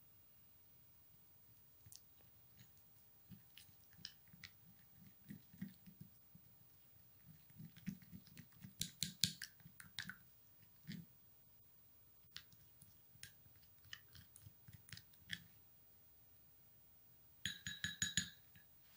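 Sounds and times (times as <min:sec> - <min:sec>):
spoon stirring paste in glass bowl: 0:01.8 - 0:11.1, 0:12.3 - 0:15.6, 0:17.4 - 0:18.7.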